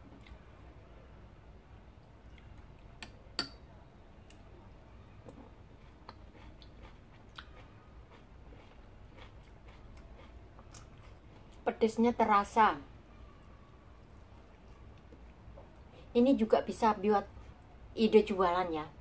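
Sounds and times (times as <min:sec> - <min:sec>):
quiet chewing: 0:00.0 - 0:00.4, 0:05.2 - 0:11.6, 0:14.0 - 0:16.0
spoon and fingers clicking on plates: 0:03.0 - 0:03.6.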